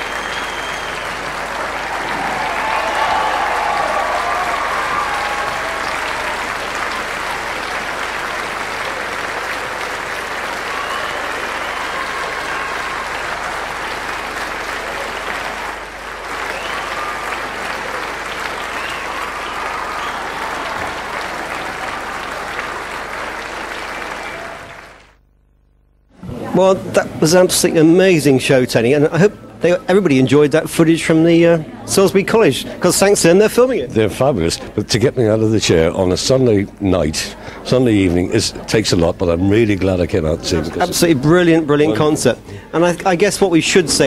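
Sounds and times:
audience applauding: 0.0 - 25.2.

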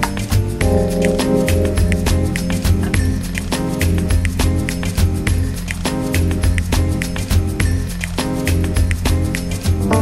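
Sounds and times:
bass and chords: 0.0 - 10.0
quick drum pattern: 0.6 - 10.0.

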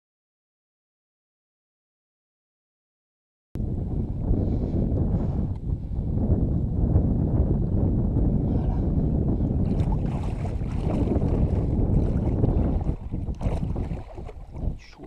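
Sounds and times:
wind rumbling on microphone: 3.6 - 15.0
water sloshing and splashing: 9.6 - 15.0.

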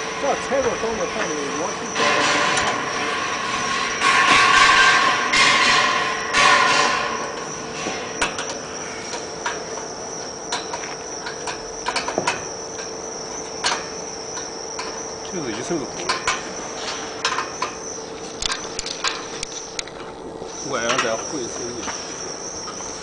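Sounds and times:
high-pitched whine: 0.0 - 23.0.

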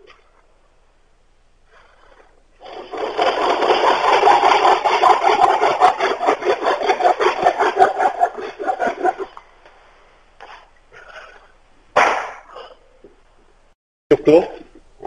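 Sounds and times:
hand saw cutting wood: 2.6 - 9.4.

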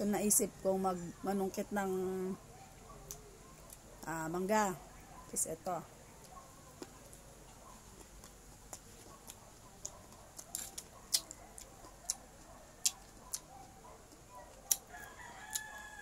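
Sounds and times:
chewing crisp mango crunches: 6.2 - 16.0
wet mouth clicks: 8.0 - 12.2, 14.6 - 14.9.

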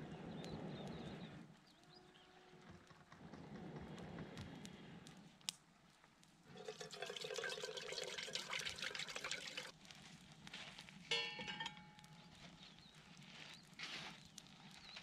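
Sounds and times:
metal mugs clinking: 6.5 - 9.7, 11.1 - 12.2
water pouring into metal pot: 6.5 - 9.7.

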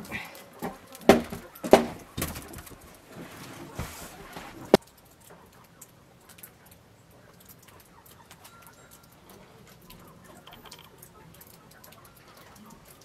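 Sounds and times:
soft ticks: 4.7 - 13.0
faint bird chirp: 5.4 - 13.0.

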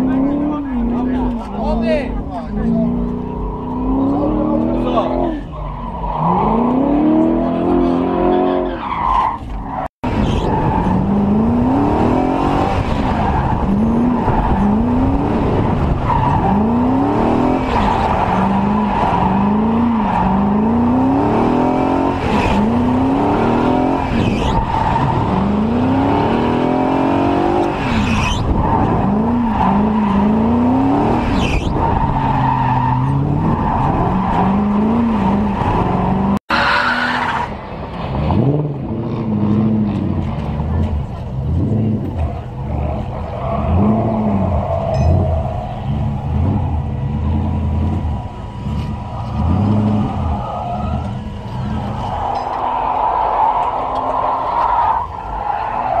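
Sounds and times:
car engine revving hard: 10.0 - 36.6
tyres skidding on concrete: 42.2 - 56.0.

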